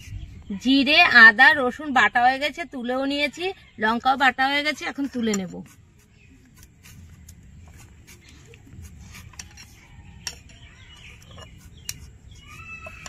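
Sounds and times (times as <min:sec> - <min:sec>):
birds chirping: 0:00.0 - 0:13.0
kitchen utensils clicking and scraping: 0:08.8 - 0:13.0.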